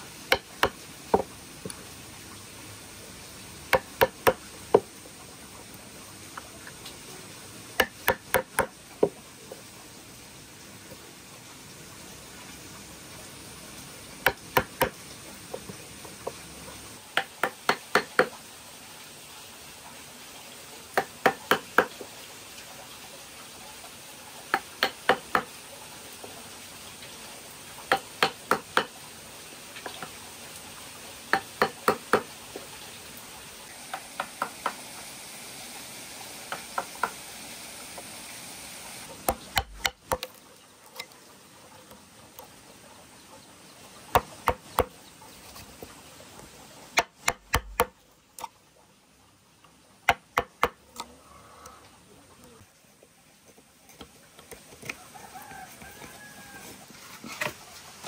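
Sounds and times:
wooden mallet striking a chisel: 0.3s - 1.3s, 3.7s - 4.9s, 7.8s - 9.2s, 14.2s - 15.0s, 17.2s - 18.3s, 21.0s - 21.9s, 24.5s - 25.5s, 27.9s - 28.9s, 31.3s - 32.3s, 39.3s - 40.3s, 44.2s - 44.9s, 47.0s - 48.0s, 50.1s - 50.8s.

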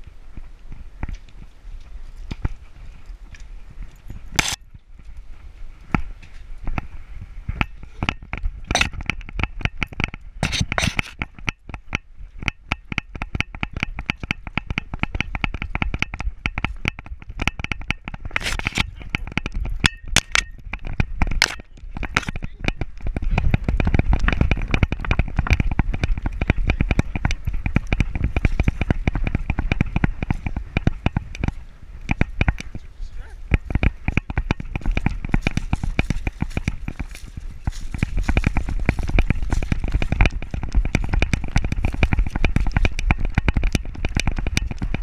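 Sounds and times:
camera mount clicking and rattling: 4.4s - 4.6s, 8.0s - 22.9s
low rumble: 18.2s - 45.0s.

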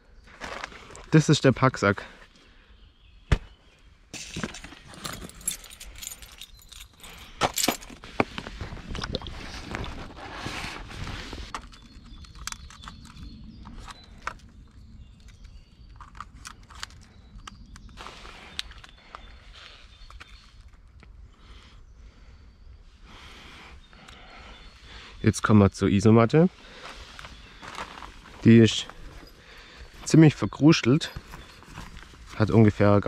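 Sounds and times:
gear rustling and clattering: 4.2s - 8.8s, 9.5s - 14.6s, 15.2s - 19.0s.

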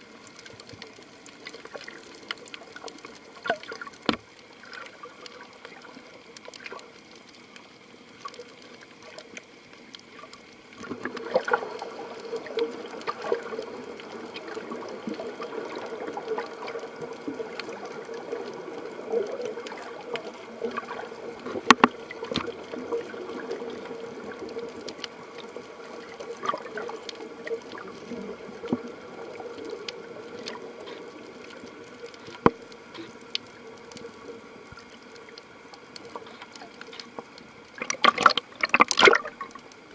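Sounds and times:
underwater watery rush: 0.0s - 39.9s
sharp clicks and knocks: 21.5s - 22.5s.

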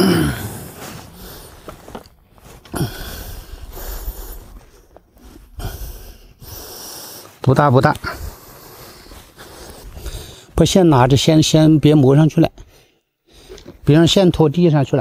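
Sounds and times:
man grunting: 0.0s - 0.6s.

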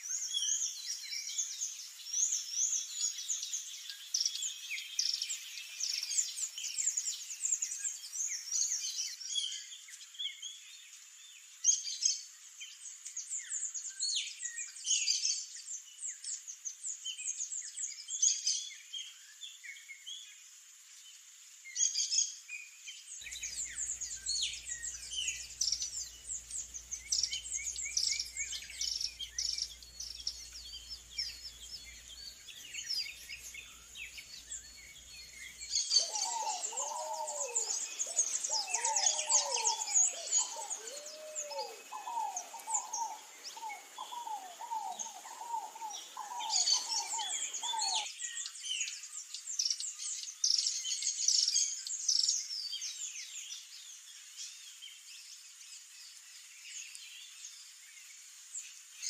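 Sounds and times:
songbirds chirping in chorus: 0.0s - 20.4s, 21.0s - 59.0s
whistled bird phrase: 26.9s - 48.1s.

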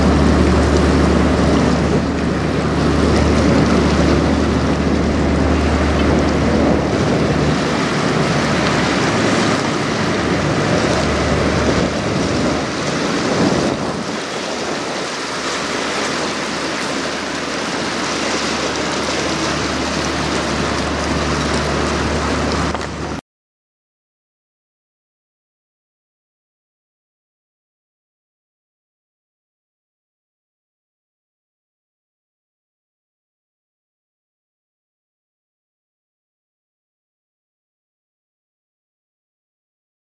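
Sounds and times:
ship engine drone: 0.0s - 23.2s
water lapping against a wall: 0.0s - 23.2s
wind on microphone: 0.0s - 23.2s.

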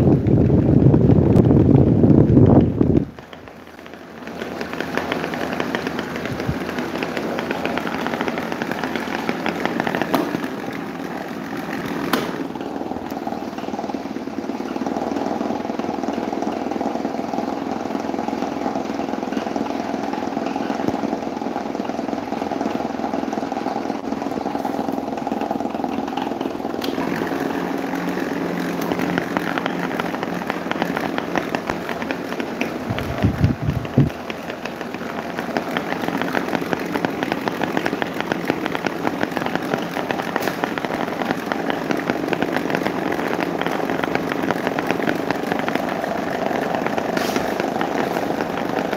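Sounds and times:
electric fans whirring: 0.0s - 48.9s.

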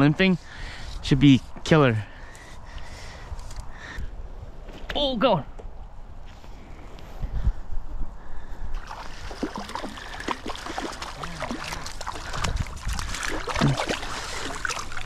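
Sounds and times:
stream water gurgling and splashing: 8.8s - 15.0s.

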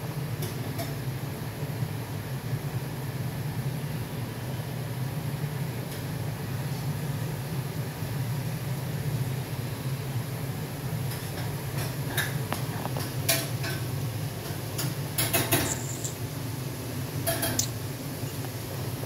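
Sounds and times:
steady low hum: 6.4s - 19.0s
dishes and cutlery clinking: 13.0s - 16.2s, 17.2s - 17.7s.

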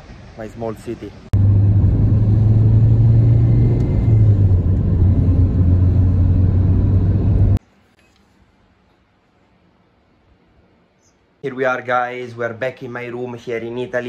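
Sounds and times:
car engine and tyre rumble: 1.1s - 7.6s.

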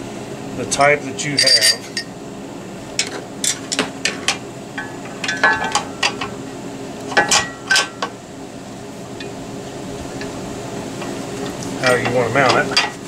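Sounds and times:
metal clanking against steel: 1.3s - 2.1s, 3.0s - 6.3s, 7.1s - 8.1s.

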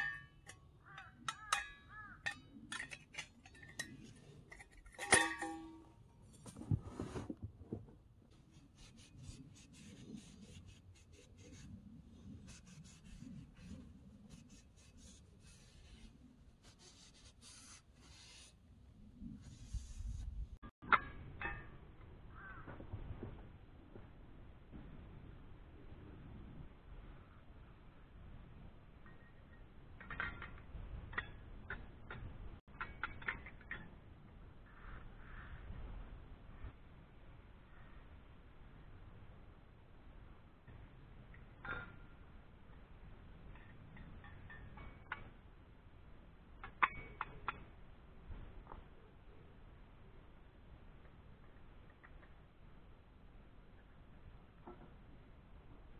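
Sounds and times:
faint scraping and rustling: 0.4s - 21.7s.

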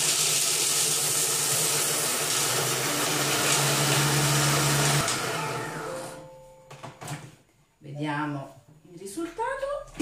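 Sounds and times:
food processor blades whirring: 0.0s - 6.2s.

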